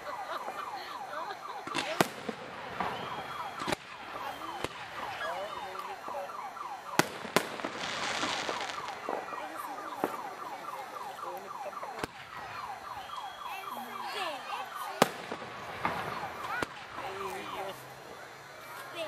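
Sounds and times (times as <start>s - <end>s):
crackling firework stars: 0.0s - 19.0s
falling whistling tones: 2.8s - 6.8s, 7.8s - 17.7s
firework shells bursting: 6.8s - 11.0s.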